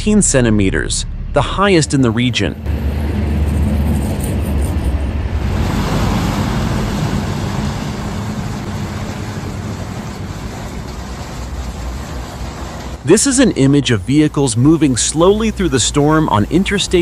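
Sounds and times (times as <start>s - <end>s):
truck engine rumbling: 0.0s - 17.0s
tyres hissing through slush: 13.8s - 17.0s.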